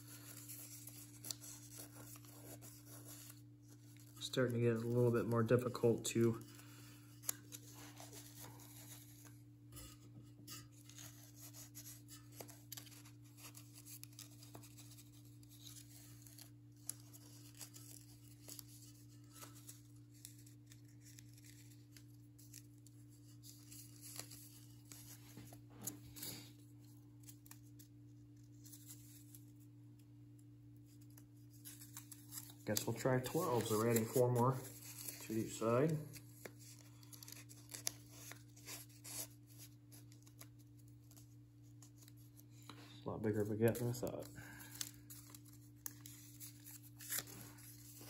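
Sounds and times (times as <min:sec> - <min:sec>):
paper rustling: 0:00.0 - 0:29.7, 0:30.8 - 0:48.0
scissors snipping paper: 0:31.7 - 0:36.0, 0:36.7 - 0:39.6.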